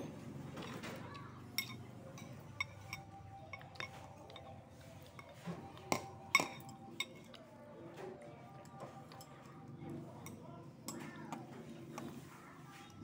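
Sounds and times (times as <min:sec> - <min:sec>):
chopsticks clinking on ceramic bowl: 0:00.0 - 0:07.5.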